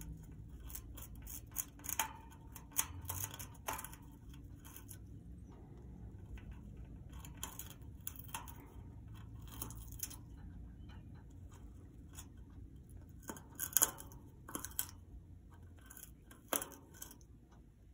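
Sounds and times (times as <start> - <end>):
parrot gnawing wood: 0.0 - 17.9.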